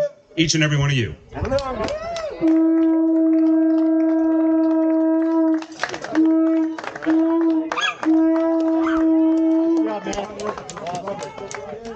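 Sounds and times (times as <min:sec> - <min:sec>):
conch shell horn blasts: 0:06.1 - 0:08.5.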